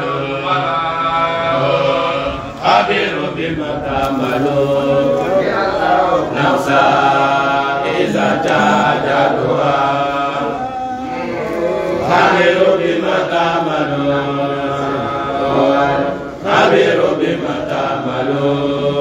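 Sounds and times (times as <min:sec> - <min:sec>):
man chanting religious recitation: 0:00.0 - 0:16.1.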